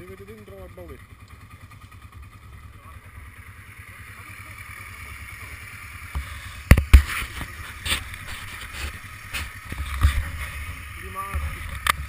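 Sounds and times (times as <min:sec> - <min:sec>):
camera handling knocks: 0:06.6 - 0:07.1.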